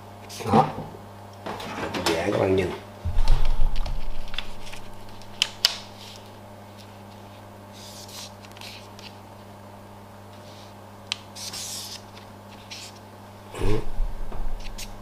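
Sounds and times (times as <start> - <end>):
steady low hum: 2.9 - 7.4, 13.1 - 15.0
plastic sheet rustling: 3.1 - 6.4.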